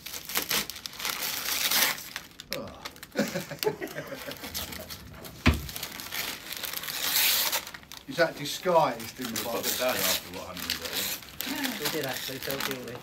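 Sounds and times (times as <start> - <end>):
wrapping paper tearing: 0.0 - 13.0
sharp thump: 5.4 - 5.8.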